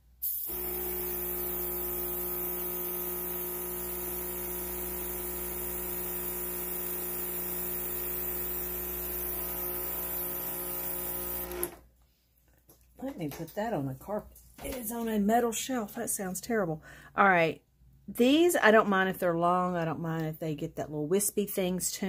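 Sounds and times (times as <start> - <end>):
compressor electric hum: 0.1 - 11.8.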